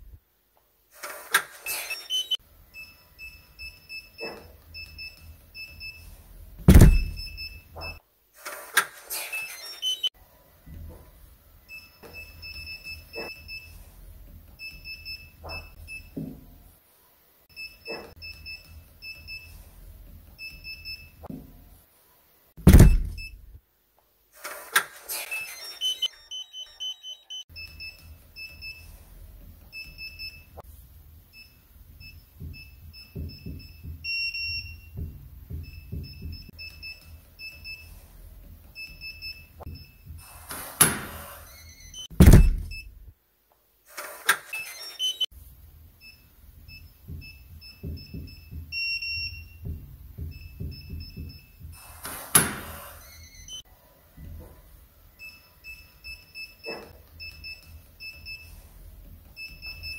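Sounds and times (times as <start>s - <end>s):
lock mechanism clicks and clunks: 6.6s - 10.1s, 22.7s - 23.6s, 39.6s - 43.1s
electronic keypad beeps: 25.4s - 28.0s.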